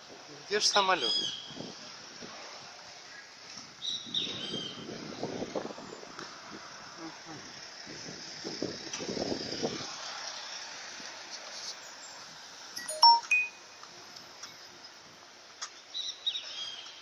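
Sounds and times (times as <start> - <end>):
short high chirps: 12.8 - 13.6.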